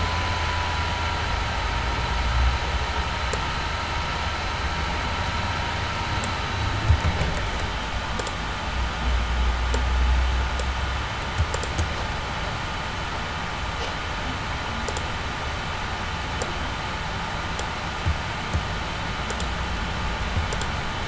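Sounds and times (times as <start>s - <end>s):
computer hiss and hum: 0.0s - 21.0s
computer mouse clicks: 6.2s - 8.4s, 10.5s - 12.0s, 14.9s - 15.1s, 17.6s - 19.6s, 20.4s - 20.8s.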